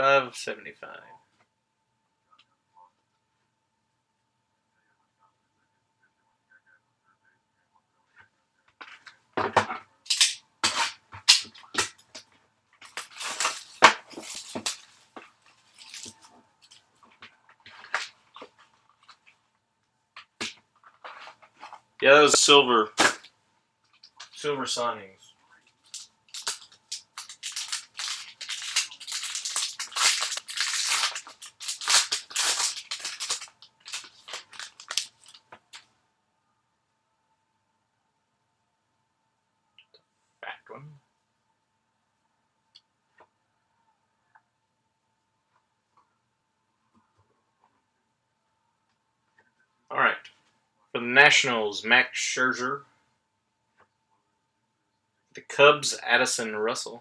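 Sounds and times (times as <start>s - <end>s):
plastic shrink-wrap crinkling and tearing: 12.8s - 16.8s, 25.7s - 35.8s.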